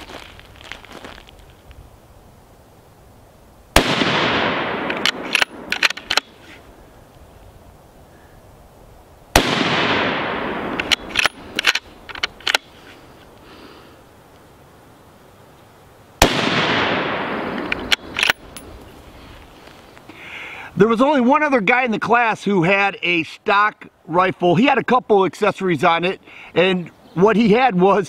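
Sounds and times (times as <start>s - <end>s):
rifle shots with echo: 3.8s - 6.2s, 9.4s - 11.4s, 16.2s - 18.4s
rifle bolt metallic clicks: 4.8s - 6.3s, 10.7s - 12.7s, 17.5s - 18.8s.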